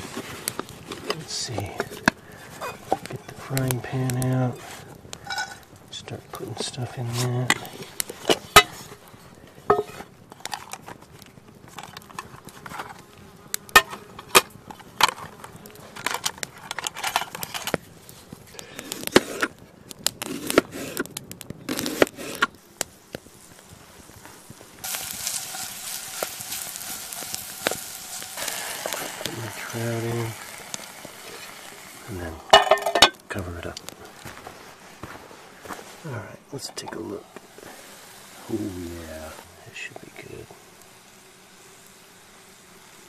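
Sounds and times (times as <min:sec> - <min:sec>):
onion and garlic sizzling: 0:00.0 - 0:43.0
metal pan clinking: 0:32.5 - 0:33.2.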